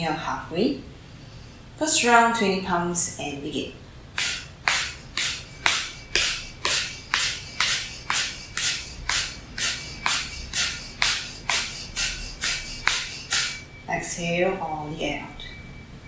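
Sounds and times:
woman's forceful nasal exhalations: 4.2s - 13.6s.

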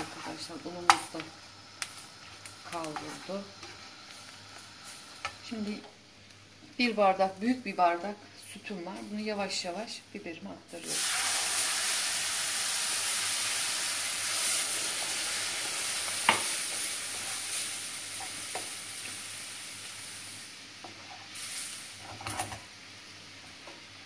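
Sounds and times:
milk sizzling in hot pan: 0.0s - 24.0s
wooden spatula stirring: 2.7s - 3.9s.

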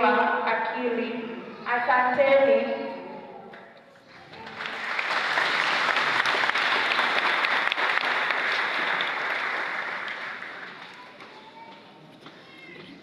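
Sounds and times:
audience applauding: 4.1s - 11.8s.

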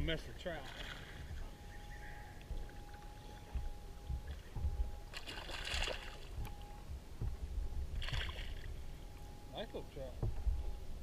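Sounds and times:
water sloshing and lapping: 0.0s - 9.4s
fish thrashing at the surface: 5.1s - 6.3s.

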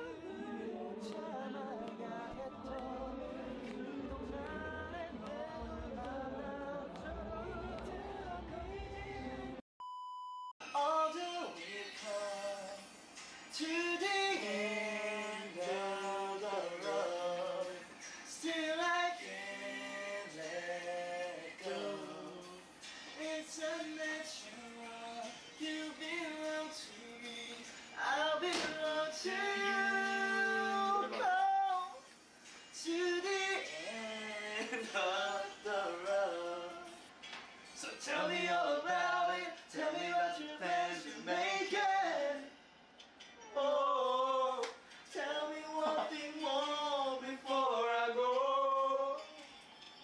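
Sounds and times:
man singing a ballad: 10.6s - 12.9s, 13.5s - 32.0s, 32.7s - 37.1s, 37.8s - 42.5s, 43.5s - 49.4s.

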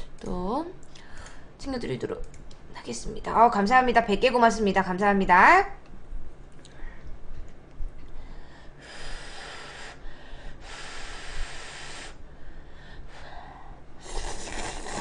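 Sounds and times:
noodles being slurped: 14.0s - 15.0s.

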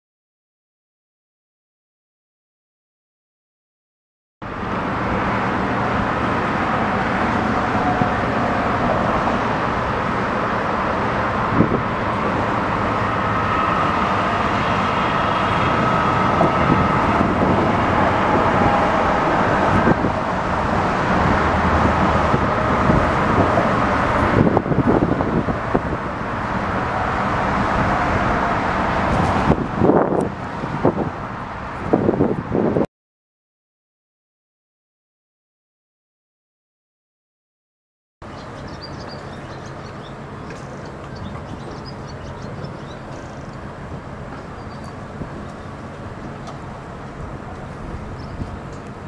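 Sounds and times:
outdoor noise: 4.4s - 32.9s, 38.2s - 49.0s
diesel engine running: 38.3s - 49.0s.

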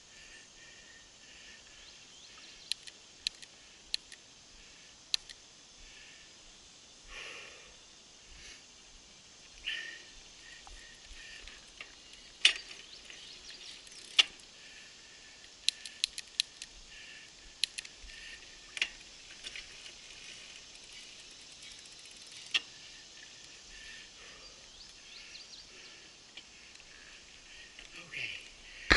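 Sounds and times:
high insect drone: 0.0s - 28.9s
bike clicks and rattles: 2.7s - 4.2s, 10.7s - 14.7s, 15.4s - 16.8s, 17.5s - 23.7s
bike tyres rolling on pavement: 8.4s - 15.2s, 17.9s - 28.9s.

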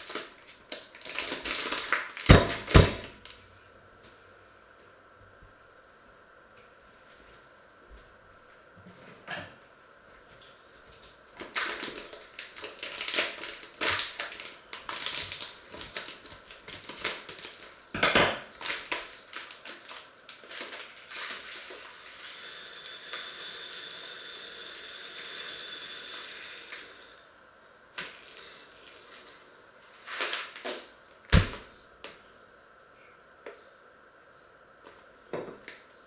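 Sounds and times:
steady high hiss: 18.8s - 36.0s.

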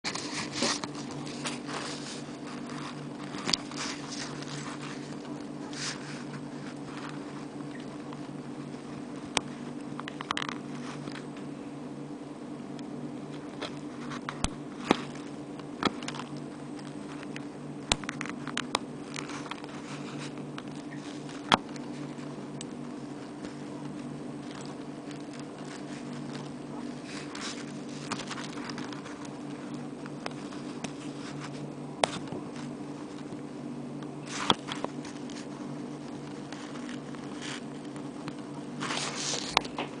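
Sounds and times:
steady low hum: 0.0s - 40.0s
soft rustles: 0.1s - 11.4s, 19.0s - 33.5s, 34.2s - 40.0s.

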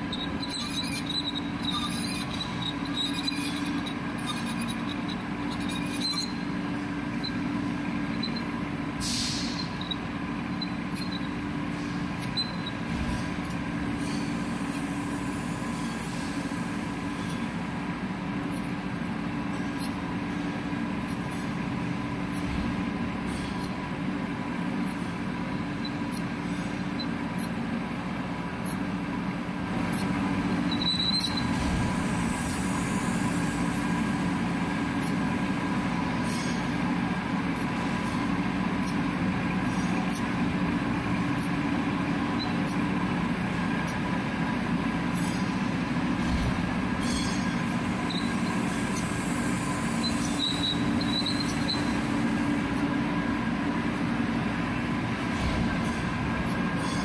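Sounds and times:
high cutting squeals: 0.0s - 16.2s, 29.9s - 35.3s, 47.0s - 53.0s, 55.8s - 57.0s
metal lathe drilling: 47.0s - 52.4s.

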